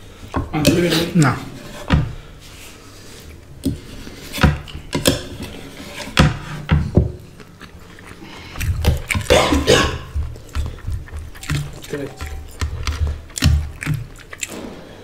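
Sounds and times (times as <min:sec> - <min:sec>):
wet chewing: 0:07.2 - 0:15.0.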